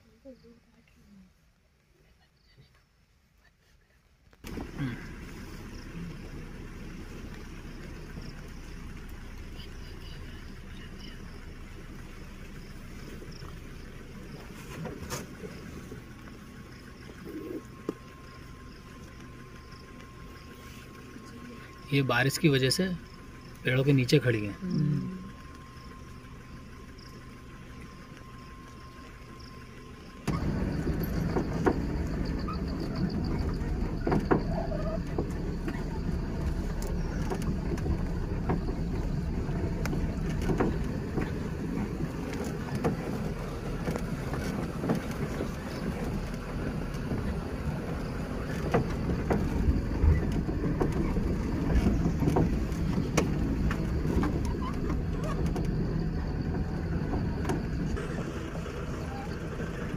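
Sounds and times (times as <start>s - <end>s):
vehicle driving on dirt track: 4.3s - 59.9s
faint steady high tone: 17.2s - 30.4s
knocks and rattles from bumps: 30.2s - 59.9s.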